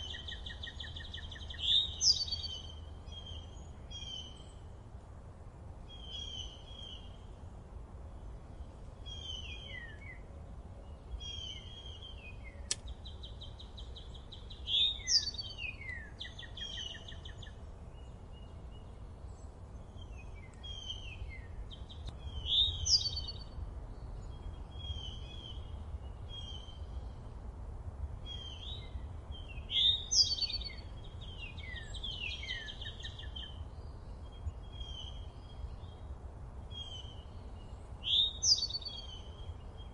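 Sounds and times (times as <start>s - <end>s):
small songbirds chirping: 0.0s - 39.9s
sharp click: 12.7s - 12.9s.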